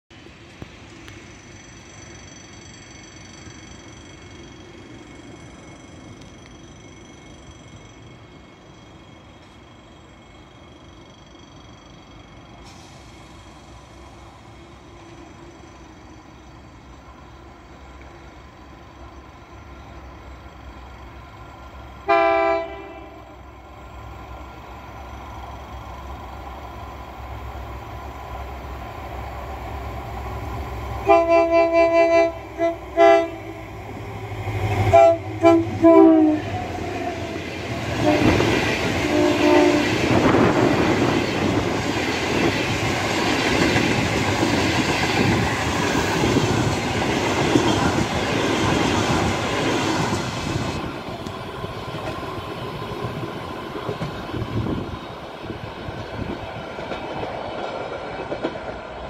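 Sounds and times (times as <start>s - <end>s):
locomotive rumble: 12.4s - 59.0s
locomotive horn blasts: 22.1s - 23.4s, 31.0s - 33.5s, 34.9s - 36.6s, 38.0s - 40.0s
train wheels clattering on rails: 33.8s - 59.0s.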